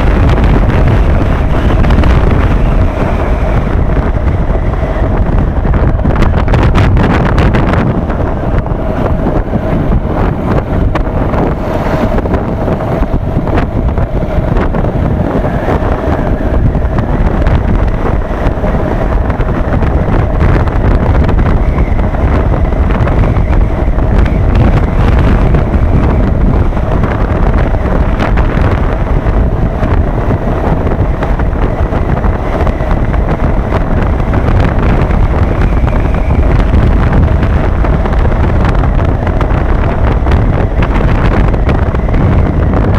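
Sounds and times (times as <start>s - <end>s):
motorcycle engine humming: 0.0s - 42.9s
wind rushing over microphone: 0.0s - 42.9s.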